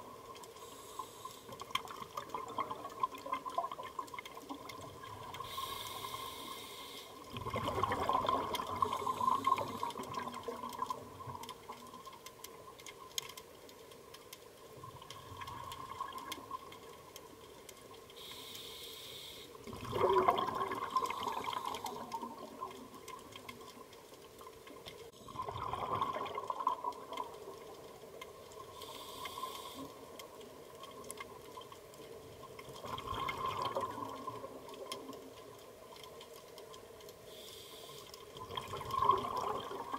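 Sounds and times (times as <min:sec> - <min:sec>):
faint steady tone: 0:00.0 - 0:39.9
regulator breathing hiss: 0:00.6 - 0:01.6, 0:05.4 - 0:07.2, 0:18.2 - 0:19.6, 0:28.7 - 0:30.0, 0:37.3 - 0:38.1
exhaled bubbles gurgling: 0:01.6 - 0:06.5, 0:07.2 - 0:12.2, 0:14.8 - 0:17.2, 0:19.6 - 0:24.5, 0:25.1 - 0:29.0, 0:30.8 - 0:35.7, 0:38.3 - 0:39.9.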